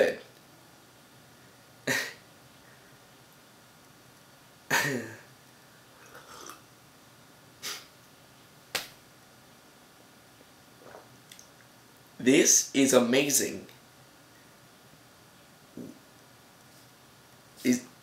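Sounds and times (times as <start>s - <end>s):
person sipping water: 6.0s - 6.7s, 10.8s - 11.5s.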